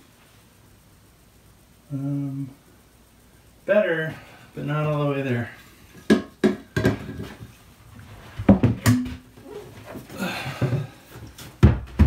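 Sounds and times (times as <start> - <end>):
knocks and clacks of hand work: 6.0 - 7.4
breathy sound: 10.1 - 11.1.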